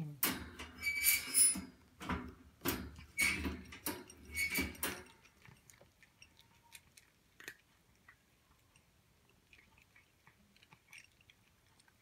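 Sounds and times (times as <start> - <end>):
food bowl clinking: 1.5 - 7.7
cat crunching dry kibble: 5.0 - 12.0.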